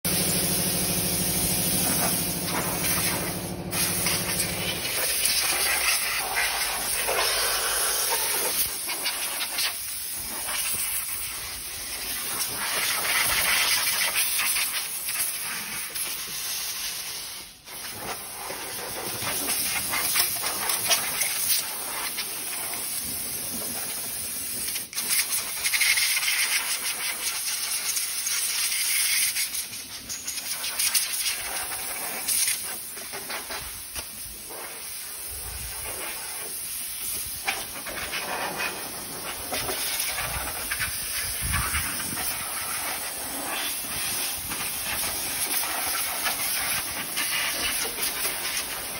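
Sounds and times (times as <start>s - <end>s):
low machine hum: 0.1s - 4.9s
air blow gun hissing: 0.1s - 48.9s.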